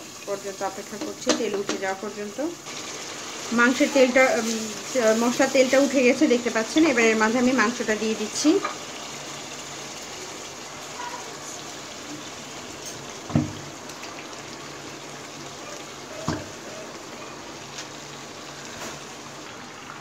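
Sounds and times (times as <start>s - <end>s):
pot simmering and bubbling: 0.0s - 20.0s.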